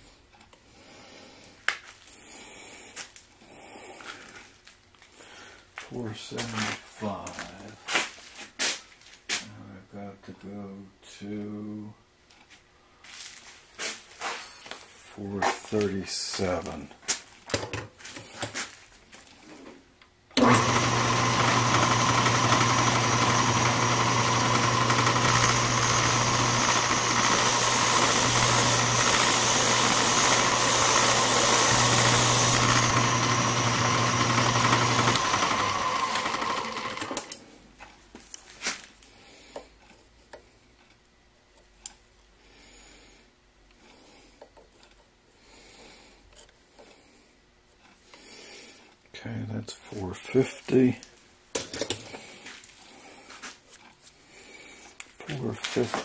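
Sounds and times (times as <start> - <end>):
bench lathe motor hum: 20.4 - 37.4.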